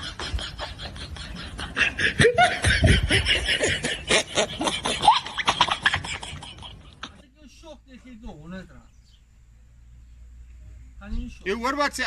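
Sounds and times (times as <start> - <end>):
laughter in quick pulses: 0.0 - 7.2.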